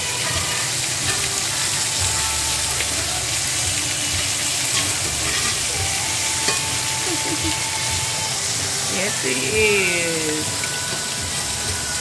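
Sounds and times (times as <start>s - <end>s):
meat sizzling in a skillet: 0.0s - 12.0s
fork clicking on skillet: 6.4s - 6.8s.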